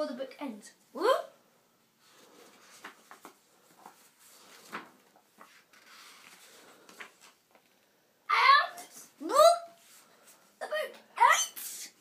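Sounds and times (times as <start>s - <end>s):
book pages rustling and turning: 2.0s - 7.8s.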